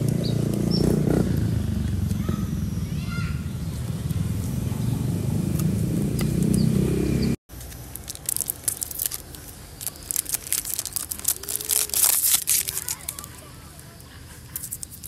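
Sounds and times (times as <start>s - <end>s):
wrapper crinkling and tearing: 7.5s - 13.7s, 14.5s - 15.0s.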